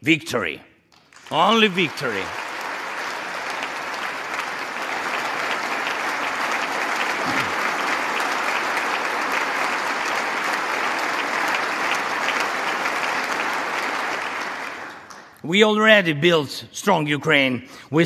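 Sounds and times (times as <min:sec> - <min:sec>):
large audience applauding: 0:01.0 - 0:15.4.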